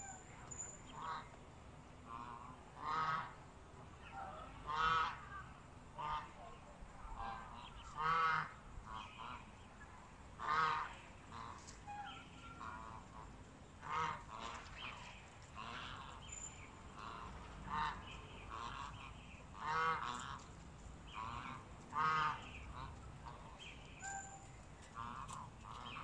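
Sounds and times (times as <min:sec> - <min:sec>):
loud poultry calls: 0:02.0 - 0:03.4, 0:04.0 - 0:09.7, 0:10.4 - 0:14.7, 0:15.6 - 0:16.3, 0:16.9 - 0:20.5, 0:21.1 - 0:26.0
soft short poultry calls: 0:02.0 - 0:03.4, 0:04.1 - 0:05.4, 0:06.0 - 0:09.5, 0:10.4 - 0:14.6, 0:16.9 - 0:20.5, 0:21.2 - 0:26.0.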